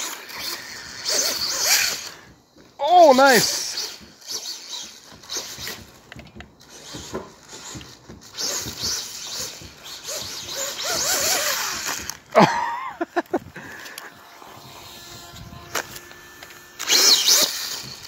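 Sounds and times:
electric motor whine: 0.0s - 18.0s.

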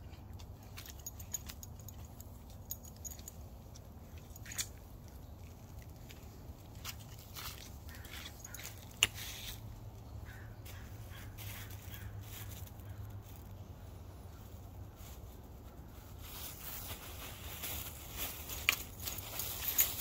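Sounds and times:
faint bird calls: 7.9s - 14.6s
rustling: 10.7s - 20.0s.

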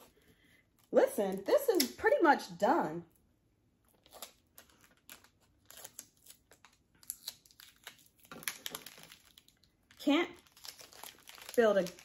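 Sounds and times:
plastic wrapper crinkling: 3.9s - 12.0s.

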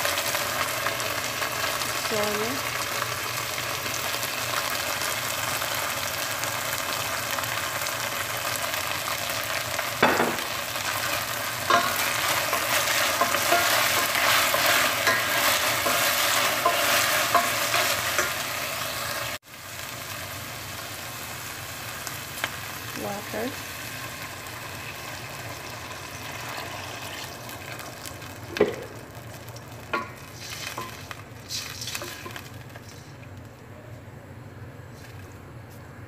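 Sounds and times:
vegetables sizzling in oil: 0.0s - 33.5s
spatula knocking and scraping pot: 11.7s - 18.4s.

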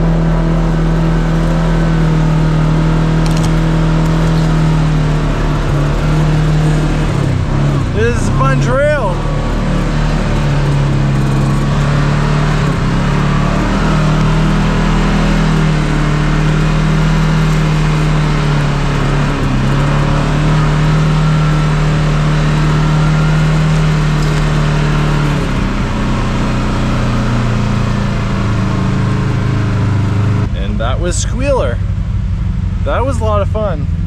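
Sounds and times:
off-road vehicle engine running: 0.0s - 34.0s.

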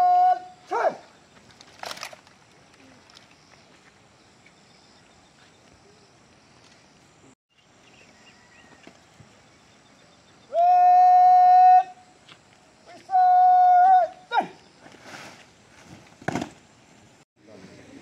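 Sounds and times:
faint outdoor background: 0.0s - 18.0s.

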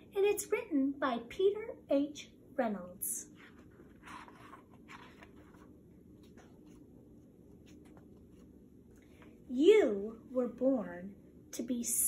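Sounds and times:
book pages turning: 3.2s - 9.4s.

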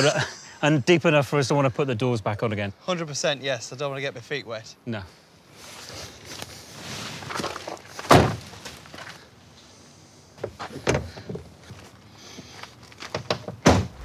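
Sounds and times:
clunks and knocks: 10.4s - 11.5s, 13.0s - 14.0s
car door shutting thunk: 13.4s - 14.0s.

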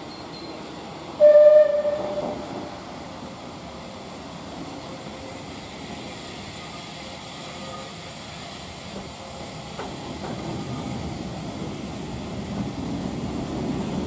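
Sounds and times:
steam locomotive whistle blast: 1.2s - 2.4s.

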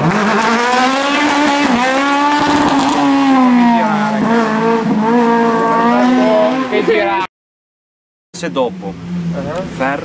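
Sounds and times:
rally car engine revving: 0.0s - 7.3s.

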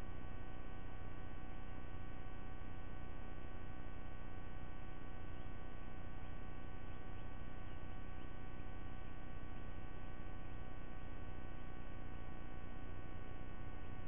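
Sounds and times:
electrical hum and buzz: 0.0s - 14.0s.

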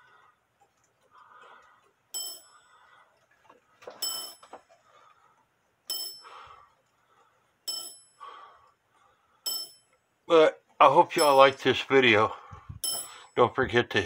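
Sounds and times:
wall clock bell striking: 11.1s - 11.6s.

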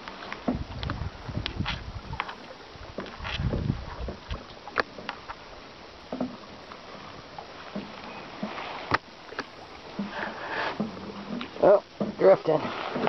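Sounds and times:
waves lapping against kayak: 0.0s - 13.0s
knocks on boat: 0.4s - 1.8s, 6.1s - 6.4s, 7.7s - 13.0s.

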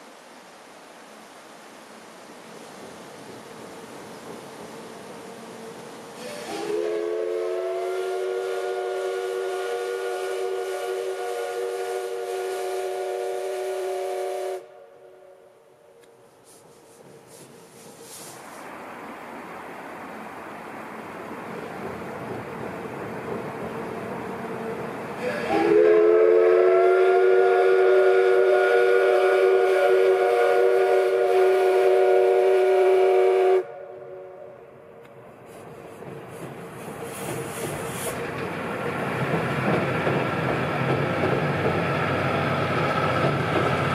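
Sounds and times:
passing train rumble: 0.0s - 43.9s
steam locomotive whistle blast: 6.2s - 15.4s, 25.2s - 34.6s.

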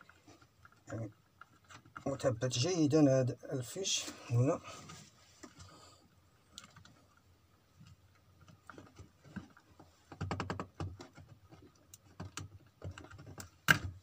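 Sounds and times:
plastic plug clicking and rattling: 12.2s - 14.0s.

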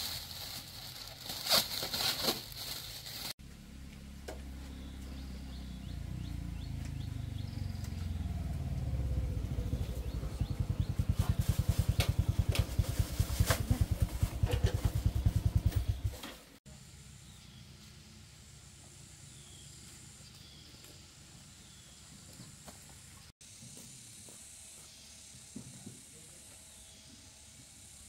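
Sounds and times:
motorbike engine idling: 3.4s - 16.4s.

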